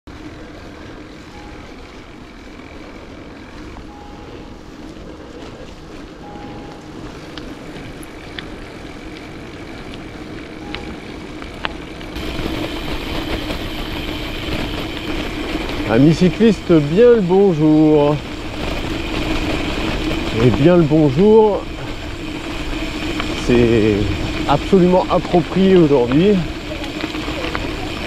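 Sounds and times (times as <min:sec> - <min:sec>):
bike tyres rolling on pavement: 0:00.1 - 0:28.0
wind rush: 0:12.1 - 0:28.0.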